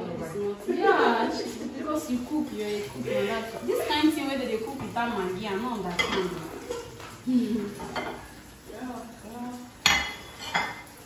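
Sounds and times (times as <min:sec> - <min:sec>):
metal pots clinking: 0:05.8 - 0:08.4, 0:09.8 - 0:11.0.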